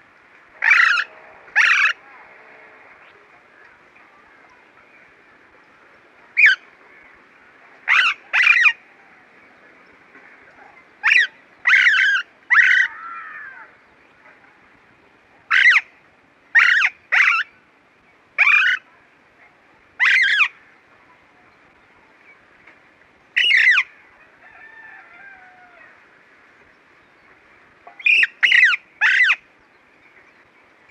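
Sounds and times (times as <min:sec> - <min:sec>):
parakeet harsh calls: 0:00.6 - 0:02.0, 0:06.4 - 0:06.6, 0:07.9 - 0:08.8, 0:11.0 - 0:13.5, 0:15.5 - 0:15.8, 0:16.6 - 0:17.5, 0:18.4 - 0:18.8, 0:20.0 - 0:20.6, 0:23.4 - 0:23.9, 0:28.0 - 0:29.4.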